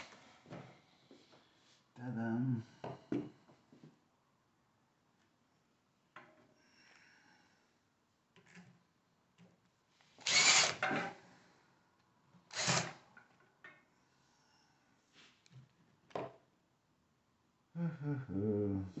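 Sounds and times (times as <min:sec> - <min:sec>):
cordless drill running: 0:10.2 - 0:10.9, 0:12.5 - 0:13.0.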